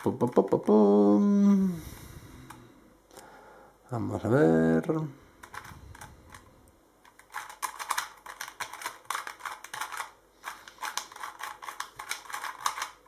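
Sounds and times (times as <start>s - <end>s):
puzzle cube clicking: 5.4s - 13.0s.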